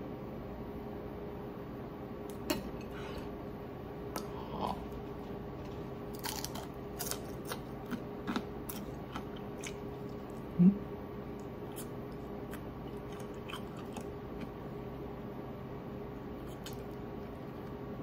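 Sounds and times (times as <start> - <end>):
faint steady hum: 0.0 - 18.0
crunching fried fish: 6.1 - 10.3.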